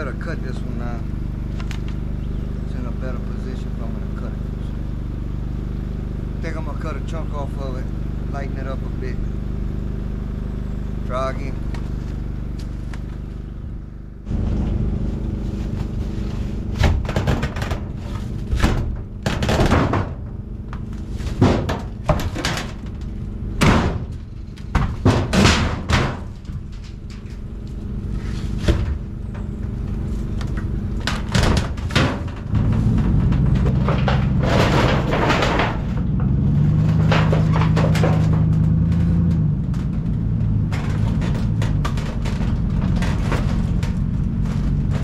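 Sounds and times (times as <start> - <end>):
small engine running: 0.0 - 45.0
knocks and bangs: 16.8 - 26.9, 31.0 - 45.0.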